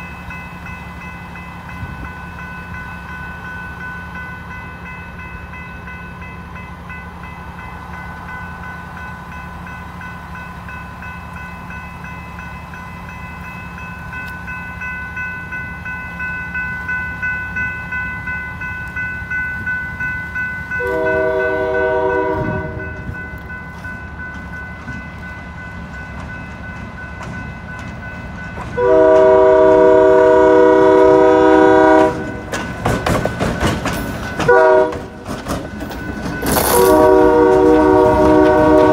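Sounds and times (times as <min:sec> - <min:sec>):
railroad crossing bell ringing: 0:00.0 - 0:38.9
locomotive air horn blasts: 0:20.8 - 0:22.9, 0:28.8 - 0:32.4, 0:34.5 - 0:35.0, 0:36.6 - 0:38.9
train wheel clicks: 0:22.9 - 0:29.3, 0:32.0 - 0:38.9.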